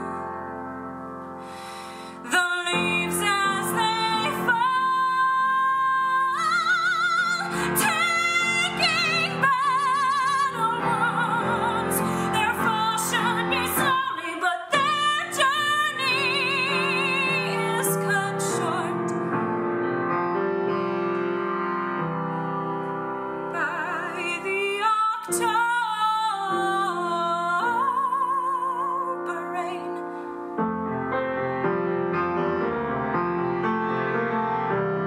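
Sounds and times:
woman singing a slow ballad: 0.0 - 0.6, 2.1 - 19.2, 23.5 - 30.3
piano accompaniment: 0.0 - 35.0.

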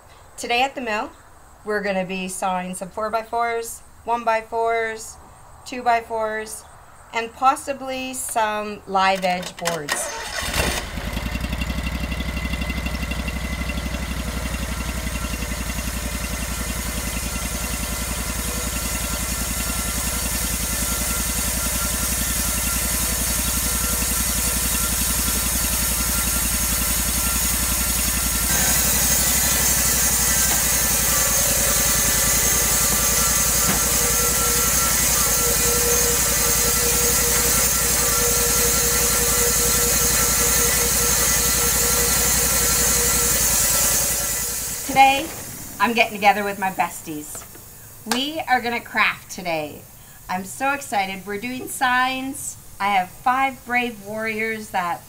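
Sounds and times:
band saw cutting wood: 9.2 - 47.5
petrol engine running: 9.2 - 48.3.

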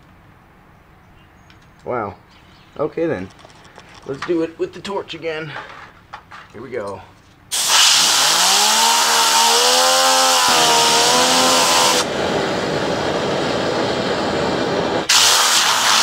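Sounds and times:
compressed air blow gun hissing: 7.5 - 16.0.

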